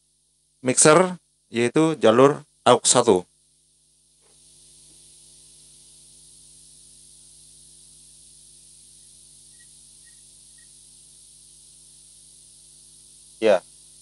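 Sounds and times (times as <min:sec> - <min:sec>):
faint mains hum: 0:00.0 - 0:14.0
sound system hiss: 0:04.2 - 0:14.0.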